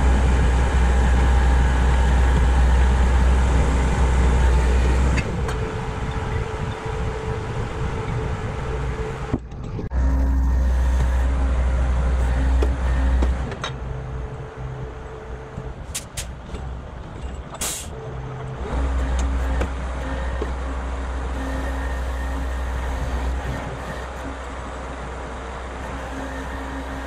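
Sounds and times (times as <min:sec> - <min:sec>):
diesel engine running: 0:00.0 - 0:27.0
short sharp air hisses: 0:17.6 - 0:17.9.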